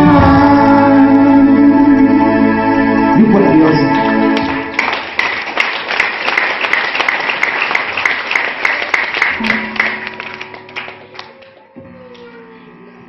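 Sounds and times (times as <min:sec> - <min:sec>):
electronic organ chord: 0:00.0 - 0:04.8, 0:09.3 - 0:11.2
audience applause: 0:04.0 - 0:11.6.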